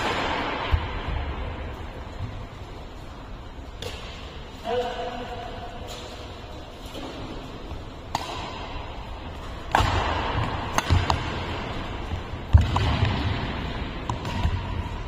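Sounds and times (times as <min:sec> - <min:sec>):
rackets striking shuttlecock: 0:00.0 - 0:01.3, 0:03.7 - 0:04.4, 0:06.8 - 0:15.0.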